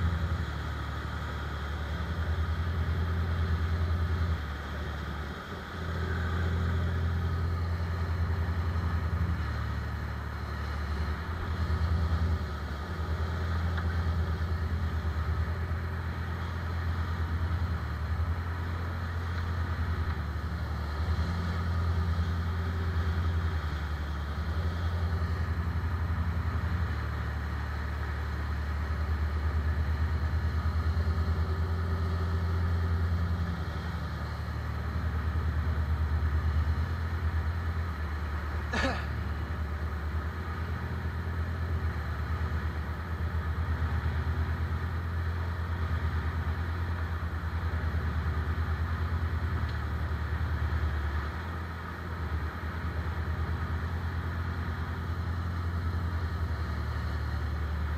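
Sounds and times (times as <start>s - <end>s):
boat engine drone: 0.0s - 57.9s
water rushing along hull: 0.0s - 57.9s.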